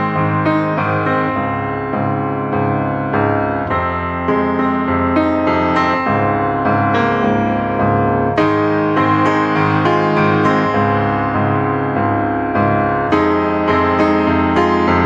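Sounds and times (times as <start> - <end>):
gentle piano melody: 0.0 - 15.0.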